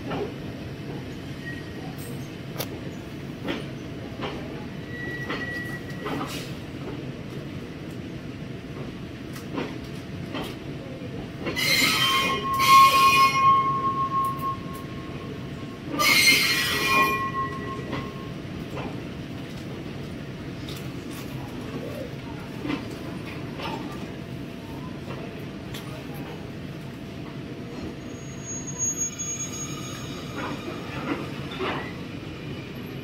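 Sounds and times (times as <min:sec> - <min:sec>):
train rumble: 0:00.0 - 0:33.0
train wheels squealing on rails: 0:00.9 - 0:06.8, 0:11.4 - 0:19.0, 0:27.6 - 0:33.0.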